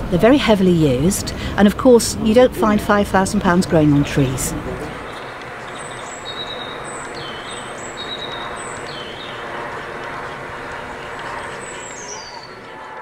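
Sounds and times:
steady rushing background noise: 0:00.0 - 0:13.0
small bird chirping: 0:05.0 - 0:09.7, 0:10.7 - 0:12.7.

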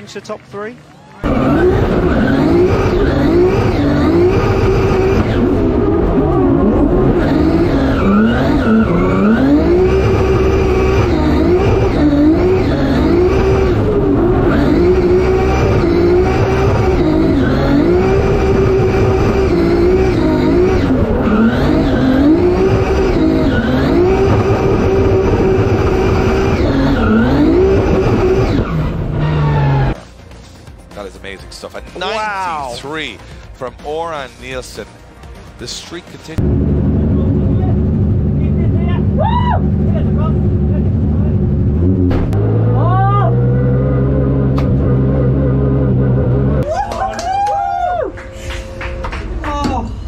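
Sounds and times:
car engine at high revs: 0:01.2 - 0:30.0, 0:36.4 - 0:46.6.

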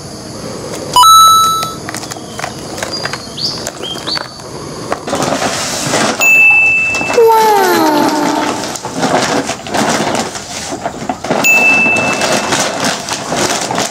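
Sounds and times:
electronic beep tones: 0:01.0 - 0:01.8
short rising chirps: 0:01.0 - 0:01.8.

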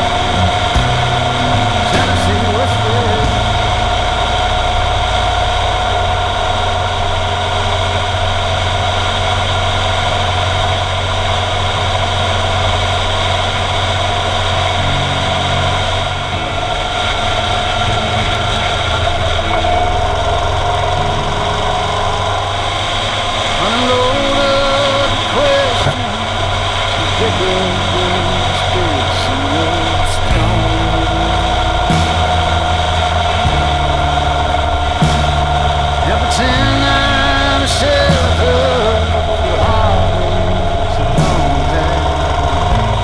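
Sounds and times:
motorcycle engine cruising: 0:00.0 - 0:43.0.

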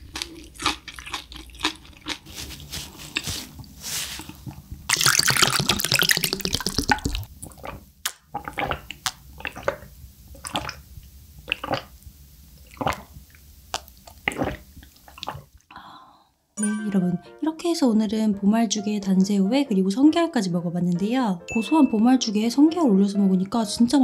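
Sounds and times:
person gulping a drink: 0:00.0 - 0:10.8, 0:11.4 - 0:12.0, 0:12.6 - 0:15.8
tissue rustling: 0:02.2 - 0:04.4.

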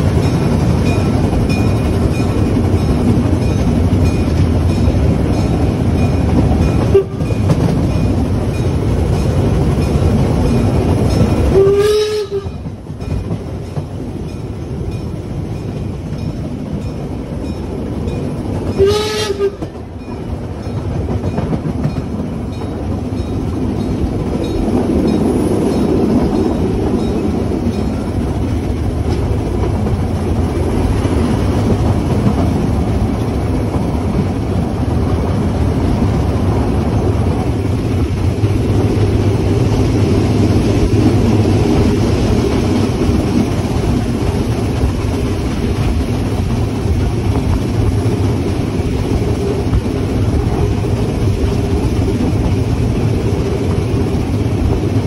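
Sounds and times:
steam train running: 0:00.0 - 0:55.0
steam whistle blasts: 0:06.9 - 0:07.2, 0:11.5 - 0:12.6, 0:18.8 - 0:19.6.

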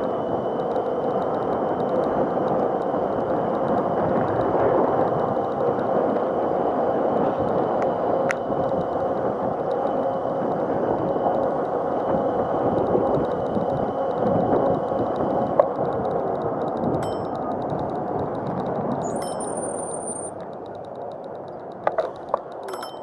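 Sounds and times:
wind rush and tyre noise: 0:00.0 - 0:23.0
faint high bell-like dings: 0:17.0 - 0:17.4, 0:19.0 - 0:20.3, 0:22.6 - 0:23.0.

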